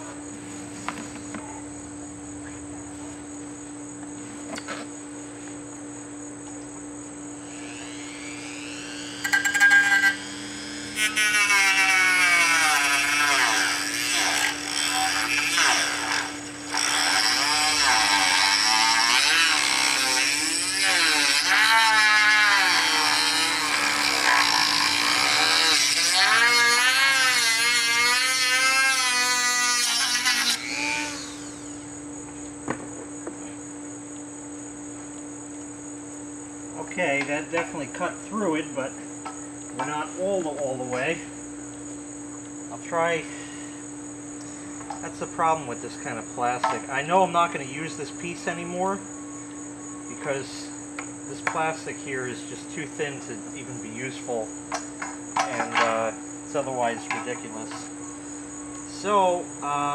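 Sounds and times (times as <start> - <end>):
rotary tool cutting plastic: 7.4 - 31.8.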